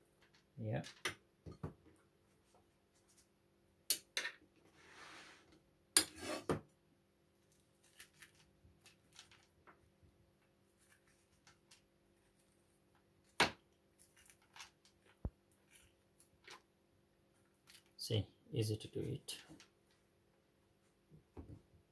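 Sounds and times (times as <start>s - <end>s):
spoon scraping squash: 6.0s - 6.5s.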